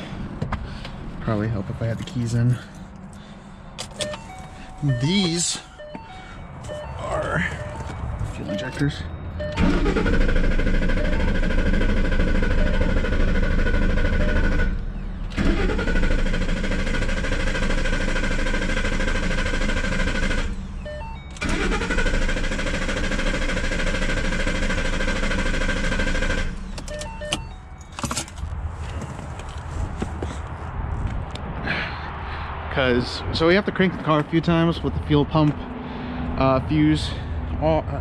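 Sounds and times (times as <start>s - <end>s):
starter cranking engine: 9.4s - 20.6s, 21.3s - 27.5s.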